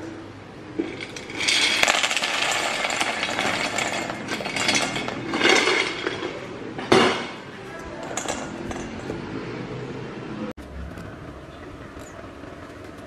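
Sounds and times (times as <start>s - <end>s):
dry pieces rattling in metal bowl: 0.9s - 6.3s.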